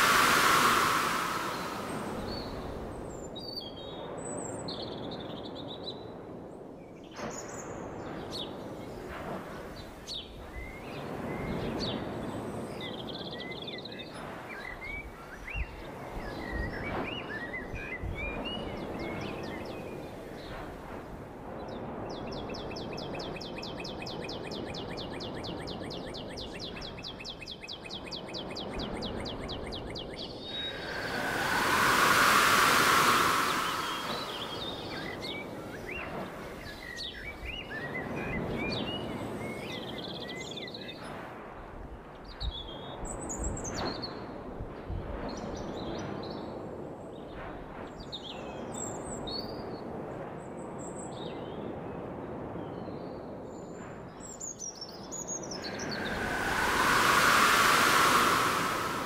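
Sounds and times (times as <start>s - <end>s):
fast high trill: 0.0s - 2.6s
noisy outdoor background: 0.0s - 3.1s, 30.4s - 37.6s, 55.5s - 59.0s.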